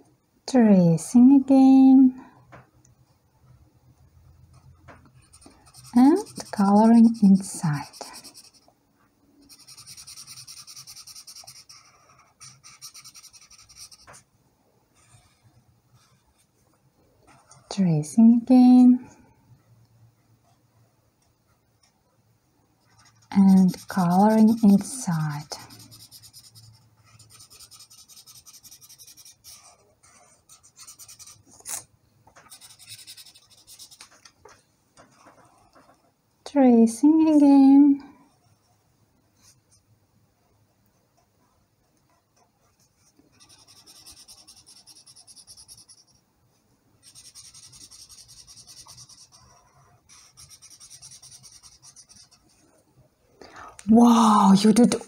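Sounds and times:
marker rubbing on paper: 5.2 - 8.7, 9.4 - 14.2, 22.9 - 31.8, 32.5 - 34.1, 43.3 - 46.2, 47.0 - 52.5.

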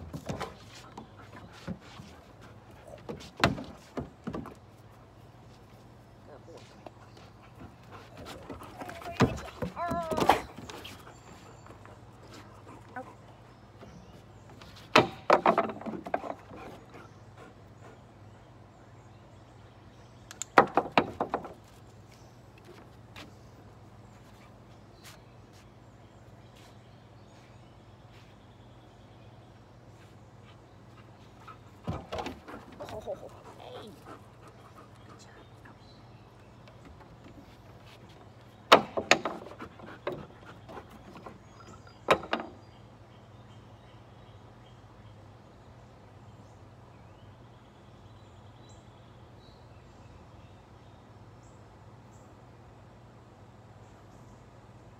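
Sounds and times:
dog claws clicking on wooden deck: 36.4 - 42.7.

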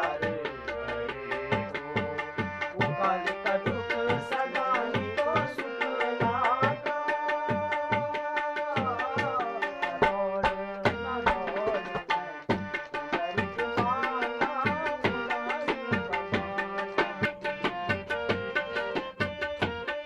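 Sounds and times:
man singing folk song: 0.0 - 12.4, 13.0 - 17.4
tabla drumming: 0.0 - 20.0.

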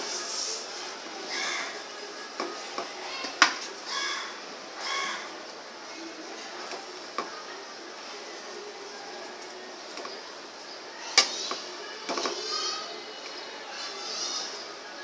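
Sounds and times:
crow cawing: 1.3 - 1.8, 3.9 - 5.3.

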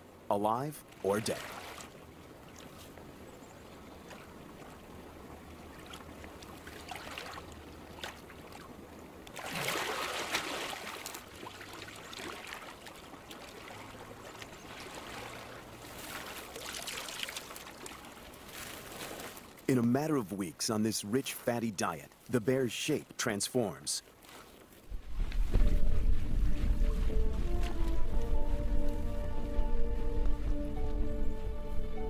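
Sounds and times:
water splashing: 0.8 - 22.7, 23.6 - 32.0
river running over stones: 4.2 - 23.0.

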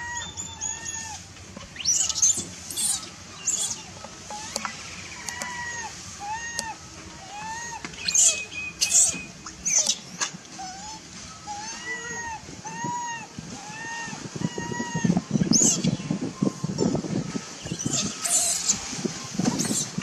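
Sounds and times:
infant monkey whimpering: 0.0 - 10.0, 10.6 - 15.8, 17.8 - 18.8, 19.5 - 20.0
monkey shrill screeches: 1.8 - 4.6, 5.2 - 10.0, 17.8 - 18.8, 19.5 - 20.0.

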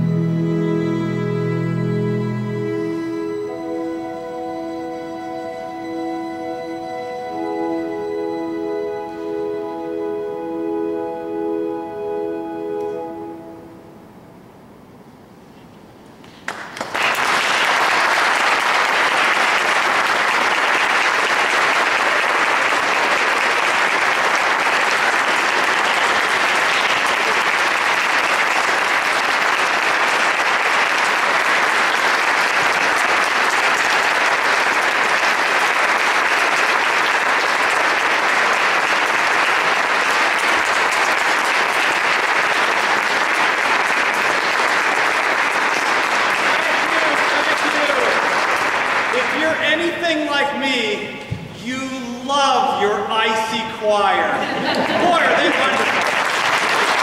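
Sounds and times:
audience applauding: 16.2 - 50.2, 54.0 - 57.0.

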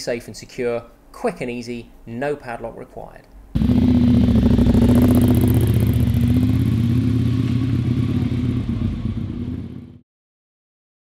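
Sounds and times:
motorcycle engine running: 3.6 - 10.0.

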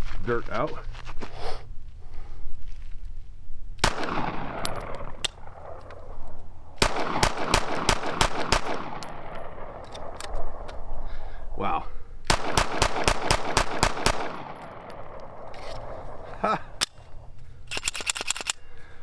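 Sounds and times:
pistol gunshots with echo: 3.8 - 10.9, 12.3 - 16.3.

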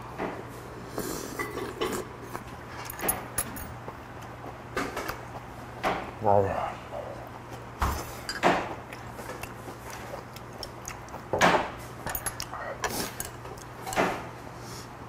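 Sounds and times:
steady low hum: 0.0 - 15.0
glass and tableware clinking: 8.2 - 8.6.

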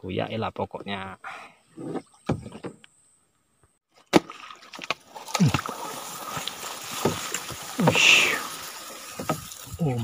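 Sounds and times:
grass scraping boat side: 1.7 - 2.8, 4.7 - 9.8
water sloshing around hull: 4.4 - 9.8.

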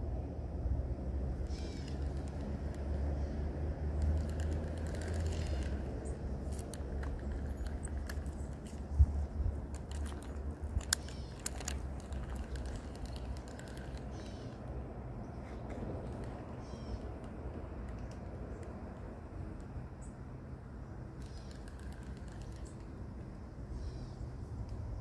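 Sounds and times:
wind rumbling on microphone: 0.7 - 19.3
light clicks and ticks: 3.8 - 14.8
faint bird chirps: 23.7 - 24.3.

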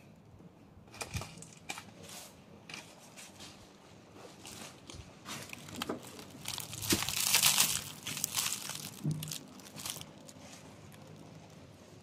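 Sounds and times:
dry leaves crunching: 5.4 - 11.7.

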